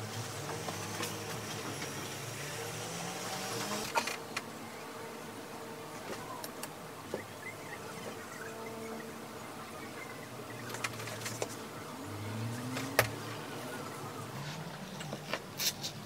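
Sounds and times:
light clicks and rustles: 10.6 - 11.7.

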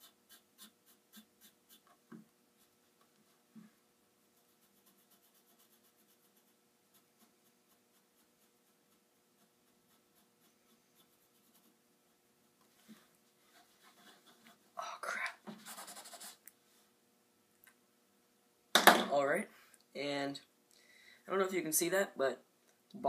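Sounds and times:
marker scribbling on paper: 0.0 - 2.0, 4.3 - 11.8, 13.5 - 14.6, 15.5 - 16.4
faint steady hum: 0.0 - 23.0.

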